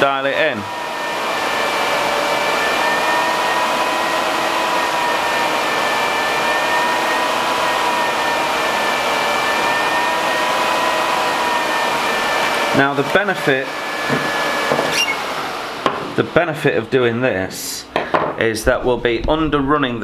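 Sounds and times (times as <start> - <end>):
cooling fan air rush: 0.0 - 17.5
thin whining tones: 14.9 - 15.7.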